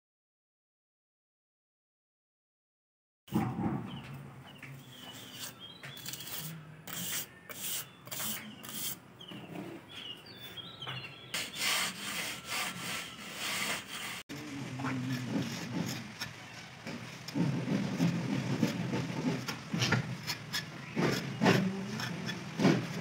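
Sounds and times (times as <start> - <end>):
birds chirping: 3.6 - 13.8, 14.4 - 23.0
hand float scraping plaster: 4.8 - 9.9, 11.4 - 16.3, 17.3 - 23.0.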